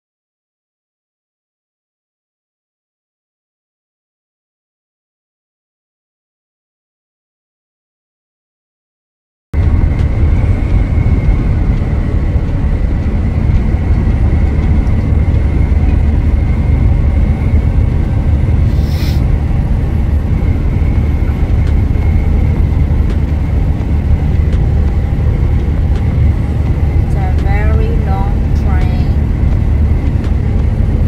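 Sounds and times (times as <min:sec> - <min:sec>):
truck engine drone and road noise: 0:09.6 - 0:31.0
brief hiss: 0:18.7 - 0:19.3.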